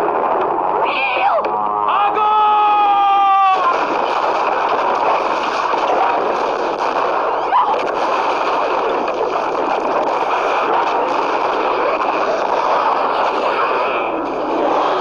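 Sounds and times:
cannons firing: 0.0 - 15.0
crashing and splashing: 3.6 - 15.0.

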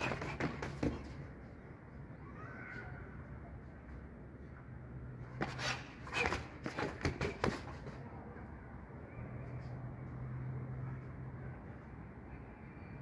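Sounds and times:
shoes shuffling on concrete: 5.2 - 8.0.

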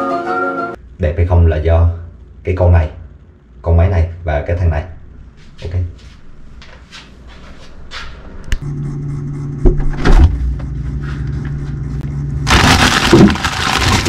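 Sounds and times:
steady low hum: 0.8 - 14.0
plastic bags rustling: 12.5 - 14.0.

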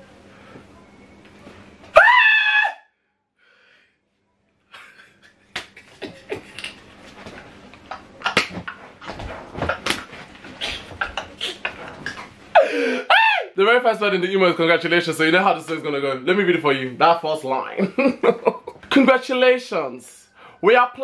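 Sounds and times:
man screaming: 1.9 - 2.9, 12.6 - 13.6.

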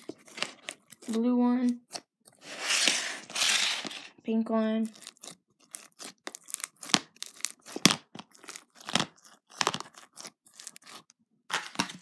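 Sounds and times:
bead slime crackling and popping: 4.9 - 11.2.

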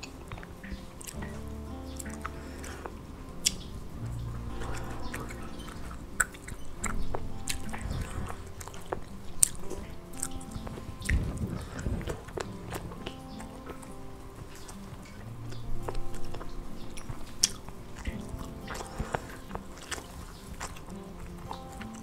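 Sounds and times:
soft background music: 0.0 - 22.0
person chewing food: 4.3 - 22.0
wet mouth clicks and smacks: 15.8 - 22.0.

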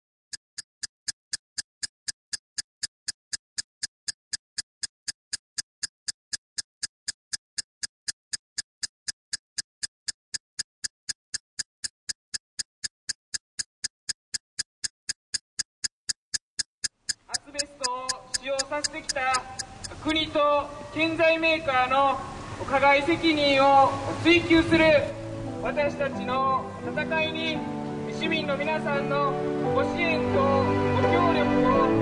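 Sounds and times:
clock ticking: 0.3 - 20.5.

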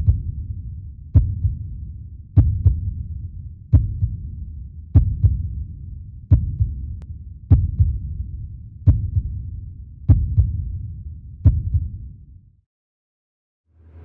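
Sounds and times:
heartbeat double thump: 1.2 - 1.6, 2.4 - 2.9, 3.8 - 4.2, 5.0 - 5.4, 6.3 - 6.8, 7.5 - 8.0, 8.9 - 9.3, 10.1 - 10.6, 11.5 - 11.9.

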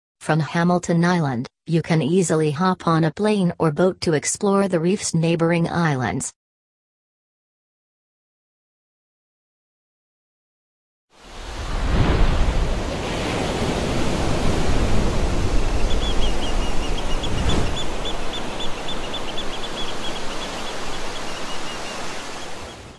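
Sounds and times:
loud rushing noise: 16.9 - 18.4.

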